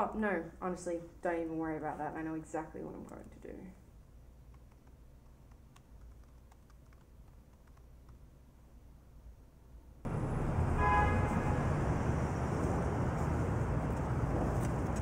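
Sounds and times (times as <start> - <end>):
traffic rumble and hiss: 10.1 - 15.0.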